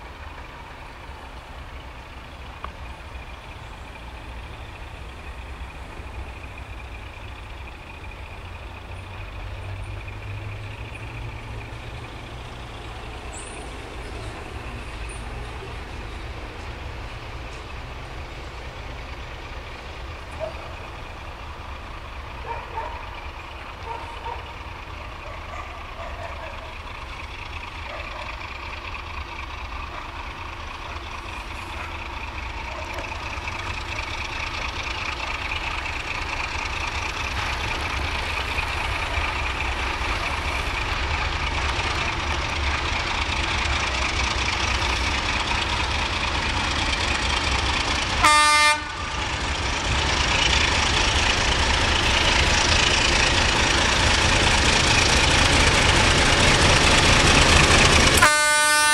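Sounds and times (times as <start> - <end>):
diesel locomotive engine rumble: 0.0 - 58.9
train horn blast: 48.2 - 49.3, 58.2 - 58.9.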